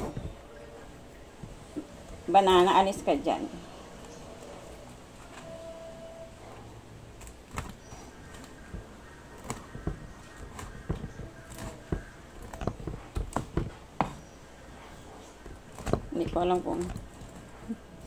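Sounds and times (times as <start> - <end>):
cleaver chopping on wooden board: 8.3 - 14.3.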